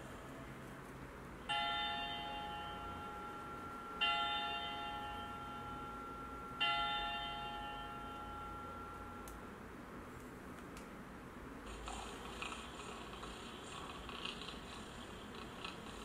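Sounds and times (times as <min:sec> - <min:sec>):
church bell strikes: 0:01.5 - 0:09.2.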